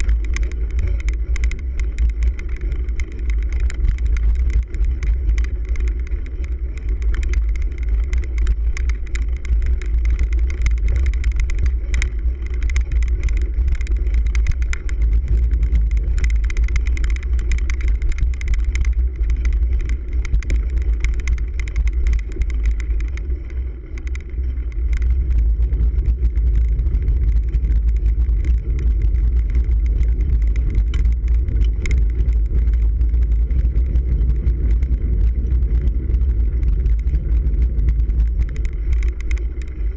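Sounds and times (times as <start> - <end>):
bike clicks and rattles: 0.0 - 39.9
wind and tyre rumble: 0.0 - 39.9.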